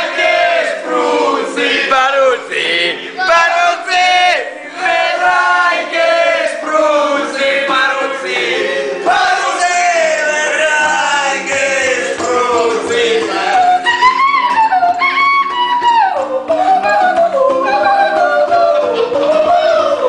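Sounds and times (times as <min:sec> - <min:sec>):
men singing together: 0:00.0 - 0:14.3, 0:17.6 - 0:20.0
ukulele strumming: 0:04.6 - 0:20.0.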